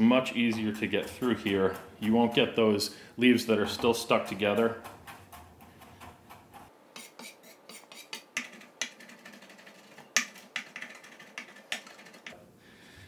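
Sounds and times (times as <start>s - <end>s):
knife tapping cutting board: 0.5s - 2.6s.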